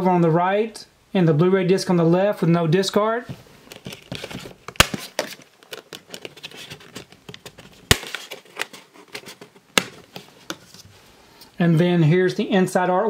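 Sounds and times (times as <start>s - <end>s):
handling rustle: 3.3s - 11.2s.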